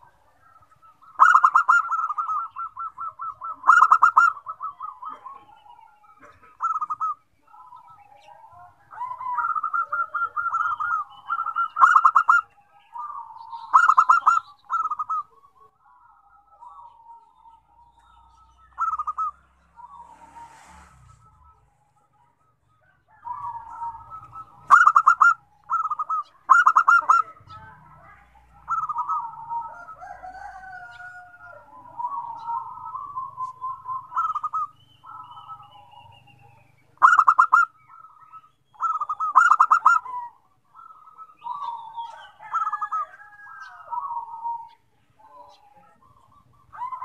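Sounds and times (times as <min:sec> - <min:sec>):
soft warbling coos: 0:00.0 - 0:22.2, 0:23.0 - 0:38.2
doves cooing: 0:00.0 - 0:47.0.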